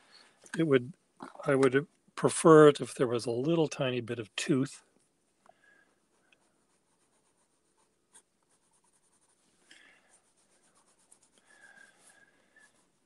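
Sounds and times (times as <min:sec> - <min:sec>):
pencil scratching on paper: 0:06.1 - 0:09.5, 0:10.1 - 0:13.0.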